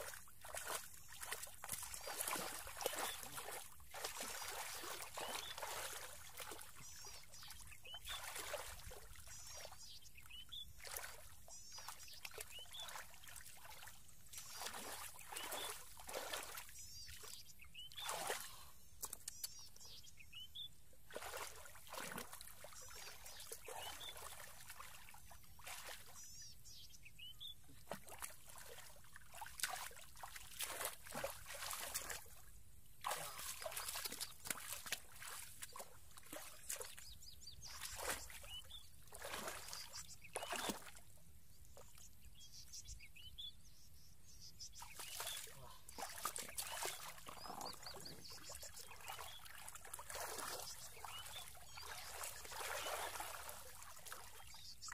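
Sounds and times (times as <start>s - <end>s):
hands splashing in muddy water: 0.0s - 6.8s, 18.0s - 19.3s, 21.1s - 26.1s, 27.8s - 32.4s, 33.0s - 37.1s, 37.7s - 41.0s, 44.9s - 54.4s.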